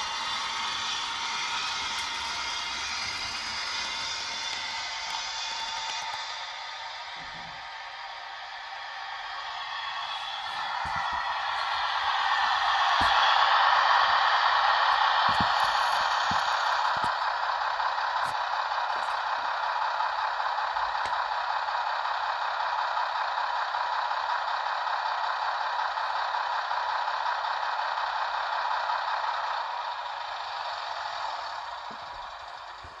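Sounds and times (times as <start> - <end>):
model train diesel engine drone: 0.0 - 33.0.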